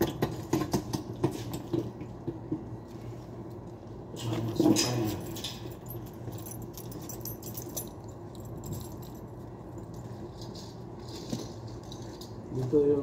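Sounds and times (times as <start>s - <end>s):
steady low hum: 0.0s - 13.0s
light clicks and jingling rattles: 4.2s - 12.9s.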